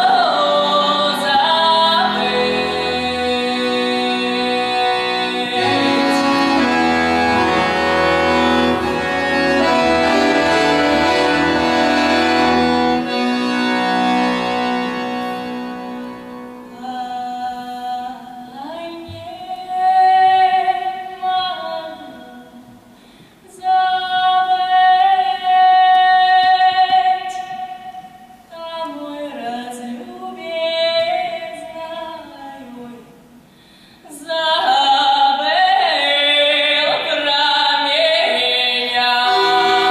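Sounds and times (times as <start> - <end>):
woman singing folk song: 0.0 - 7.2, 16.7 - 33.3, 34.0 - 39.9
accordion: 0.0 - 16.8, 39.1 - 39.9.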